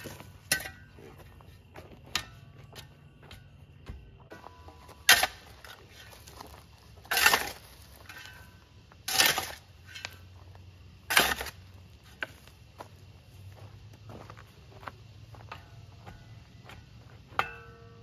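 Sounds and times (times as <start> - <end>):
shovel scraping gravelly soil: 0.0 - 2.6, 4.3 - 12.6.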